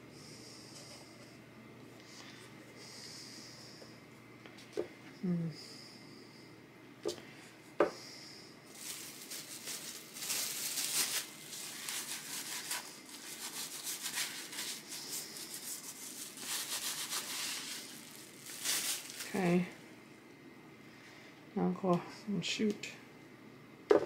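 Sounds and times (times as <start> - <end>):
plastic bag rustling: 8.6 - 19.8
hands rubbing paper: 8.9 - 19.2.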